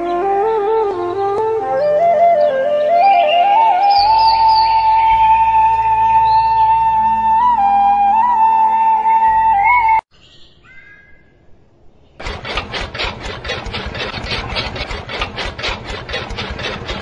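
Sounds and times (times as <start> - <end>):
flute music: 0.0 - 10.1
chaff cutter chopping leaves: 12.2 - 17.0
low motor hum: 12.2 - 17.0.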